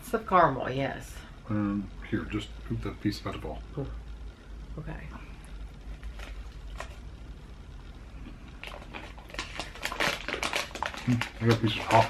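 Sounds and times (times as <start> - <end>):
chocolate bar chewing: 5.8 - 7.2, 8.2 - 12.0
crackly clicks: 8.5 - 12.0.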